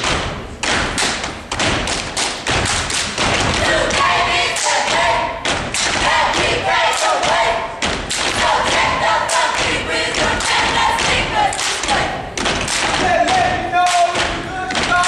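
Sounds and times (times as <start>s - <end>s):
stomping and clapping in unison: 0.0s - 15.0s
group of voices chanting: 3.5s - 15.0s.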